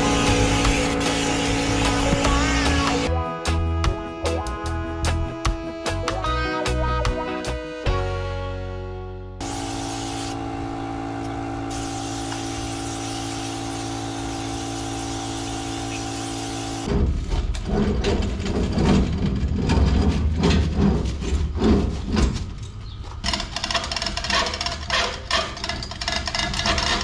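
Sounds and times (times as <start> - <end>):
motor hum: 0.0 - 3.1, 9.4 - 16.9
chain hoist knocking and clattering: 23.2 - 27.0.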